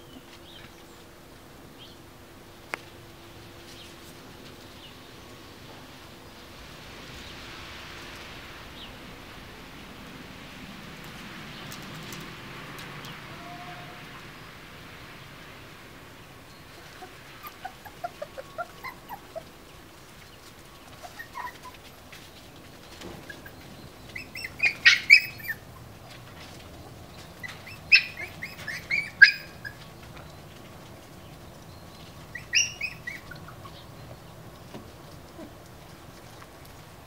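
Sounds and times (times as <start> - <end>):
puppies squeaking and yelping: 16.7 - 19.7, 20.5 - 30.1, 32.2 - 34.2.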